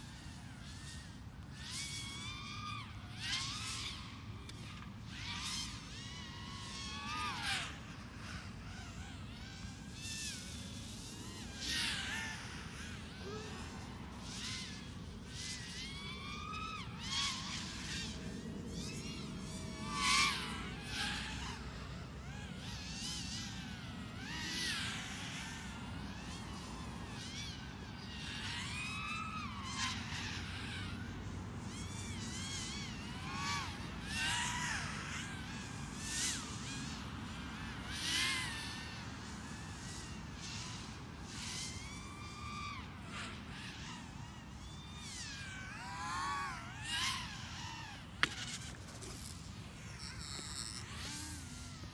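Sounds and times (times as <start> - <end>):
quadcopter motors whining: 0.0 - 51.9.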